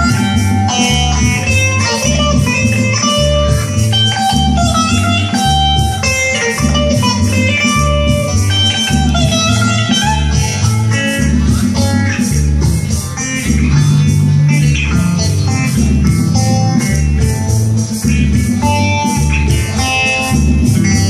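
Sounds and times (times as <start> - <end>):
bass line: 0.0 - 21.0
electric guitar melody: 0.0 - 21.0.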